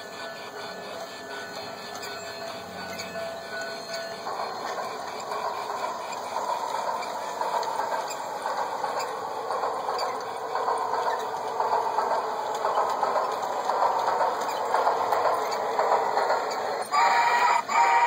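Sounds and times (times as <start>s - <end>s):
model trains whirring and rattling: 0.0s - 18.0s.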